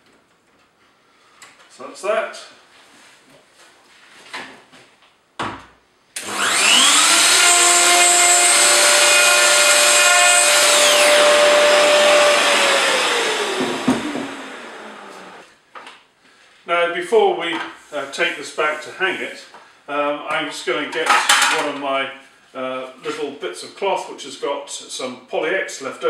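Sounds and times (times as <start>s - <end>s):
electric router whining: 6.2s - 15.4s
knock: 13.6s - 14.3s.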